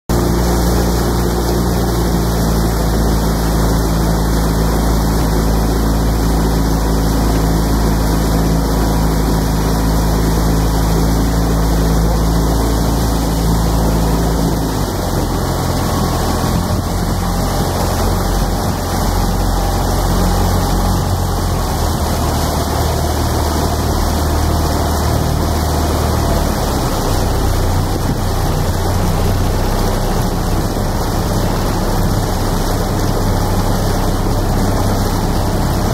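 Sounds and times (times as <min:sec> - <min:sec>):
outboard motor running: 0:00.1 - 0:35.9.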